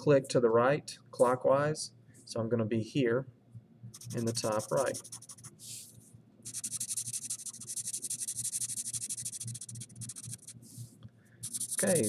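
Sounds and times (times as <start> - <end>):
marker scribbling on paper: 4.0 - 5.8, 6.5 - 10.7, 11.4 - 12.0.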